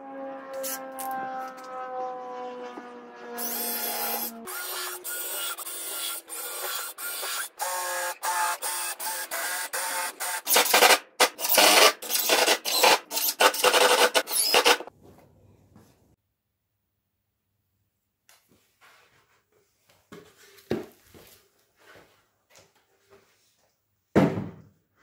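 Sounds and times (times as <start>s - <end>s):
drill driver whining: 3.4s - 14.9s.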